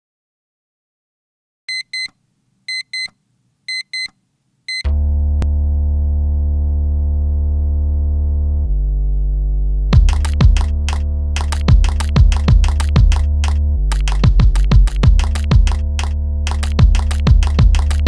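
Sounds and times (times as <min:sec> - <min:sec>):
alarm clock beeping: 0:03.7 - 0:04.1
low synthesizer note: 0:04.9 - 0:18.0.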